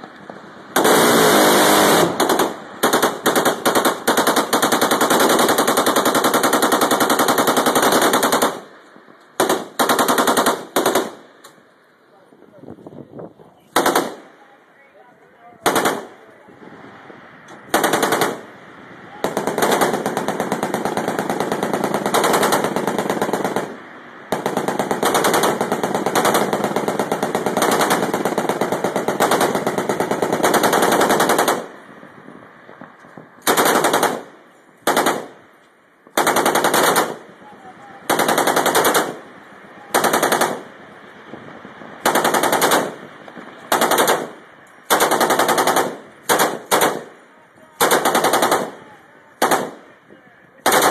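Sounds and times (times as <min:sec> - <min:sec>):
automatic gunfire bursts: 0:00.8 - 0:08.7, 0:09.4 - 0:11.2, 0:13.7 - 0:14.3, 0:15.6 - 0:16.2, 0:17.7 - 0:18.5, 0:19.2 - 0:31.8, 0:33.4 - 0:35.4, 0:36.2 - 0:37.3, 0:38.0 - 0:39.3, 0:39.9 - 0:40.7, 0:42.0 - 0:47.2, 0:47.8 - 0:49.9, 0:50.6 - 0:50.9.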